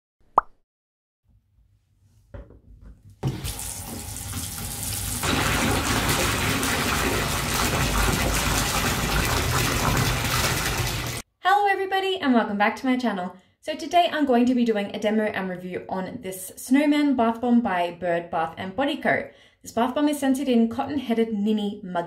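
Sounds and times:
water pouring into bathtub: 0:03.2 - 0:11.2.

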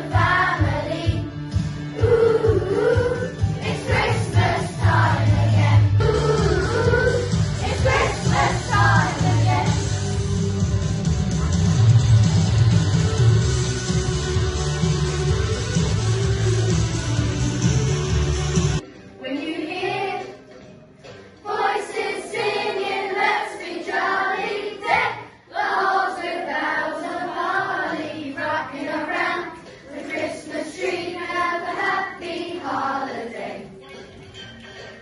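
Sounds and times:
children singing together: 0:00.0 - 0:09.9, 0:19.2 - 0:20.5, 0:21.4 - 0:33.8.

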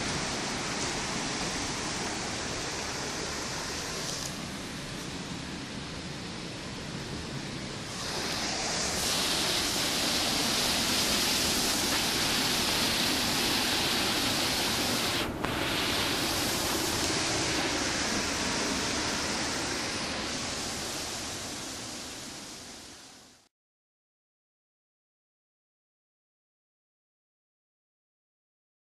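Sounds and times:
water rushing through weir: 0:00.0 - 0:05.9, 0:07.7 - 0:23.3.

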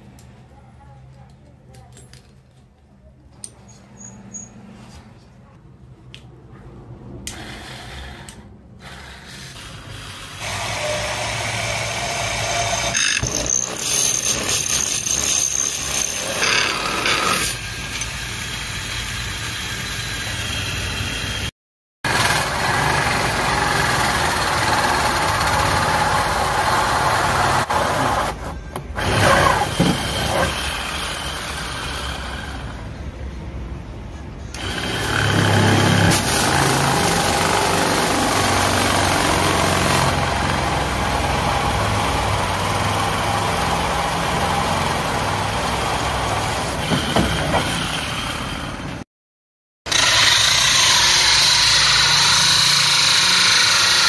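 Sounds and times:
drill boring into wood: 0:10.4 - 0:21.3, 0:34.6 - 0:47.2, 0:49.9 - 0:54.0
hole saw cutting plastic: 0:22.1 - 0:32.7, 0:34.5 - 0:43.8, 0:49.9 - 0:54.0.

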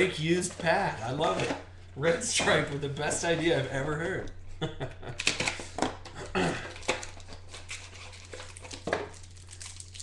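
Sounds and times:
foil wrappers crinkling: 0:06.6 - 0:10.0.

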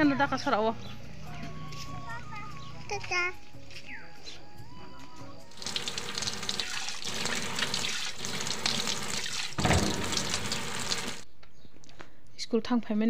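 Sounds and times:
splashing while washing: 0:05.5 - 0:11.2
tap water running into sink: 0:05.6 - 0:11.2
thump: 0:09.6 - 0:10.3.

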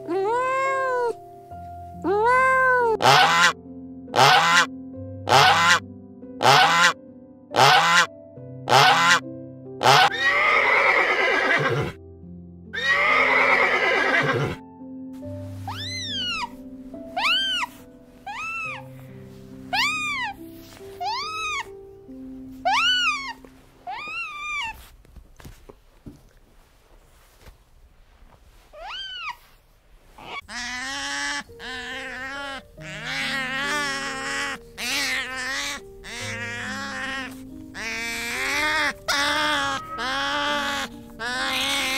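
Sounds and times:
soft background music: 0:00.0 - 0:41.9
sea otters squealing: 0:03.0 - 0:03.6, 0:04.2 - 0:04.7, 0:05.3 - 0:05.8, 0:06.4 - 0:06.9, 0:07.6 - 0:08.1, 0:08.7 - 0:09.2, 0:09.8 - 0:11.7, 0:15.6 - 0:16.6, 0:17.2 - 0:19.0, 0:19.7 - 0:20.4, 0:21.0 - 0:21.7, 0:22.6 - 0:24.8, 0:28.8 - 0:29.5, 0:30.2 - 0:41.9
horse whinnying: 0:09.8 - 0:12.0, 0:12.8 - 0:14.6, 0:34.8 - 0:41.9.

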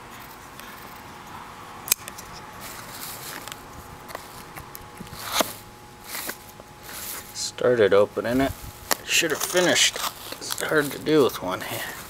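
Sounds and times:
scrape: 0:05.1 - 0:07.3, 0:09.3 - 0:11.0.

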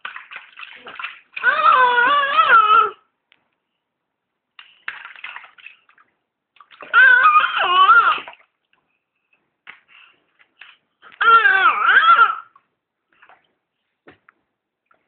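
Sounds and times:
bathwater sloshing: 0:00.0 - 0:02.0, 0:04.6 - 0:08.8, 0:13.1 - 0:13.7
baby crying: 0:01.4 - 0:03.0, 0:06.9 - 0:08.3, 0:11.0 - 0:12.6.

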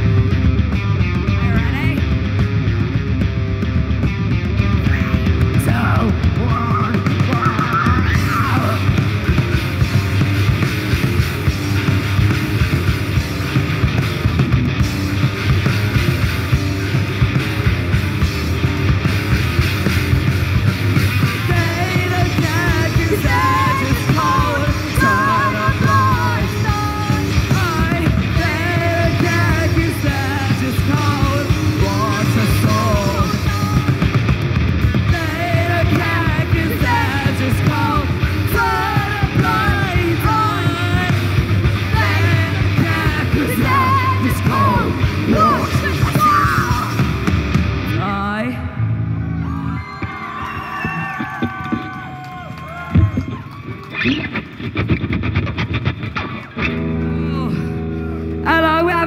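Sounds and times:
punk rock band playing: 0:00.0 - 0:59.0
person singing: 0:21.2 - 0:34.1, 0:35.0 - 0:47.1.

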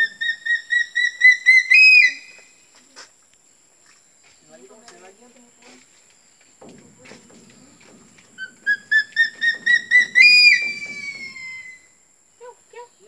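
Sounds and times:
eagle calling: 0:00.0 - 0:02.5, 0:07.8 - 0:12.0.

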